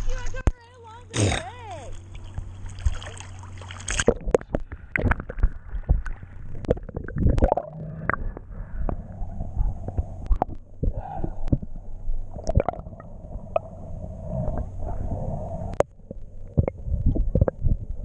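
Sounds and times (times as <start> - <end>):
muffled underwater gurgling: 3.4 - 18.0
underwater clicks and knocks: 3.9 - 9.0, 15.8 - 18.0.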